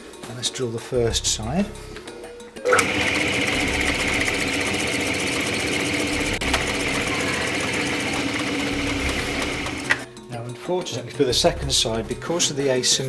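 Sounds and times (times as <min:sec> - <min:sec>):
drill boring into wood: 0:02.7 - 0:10.0.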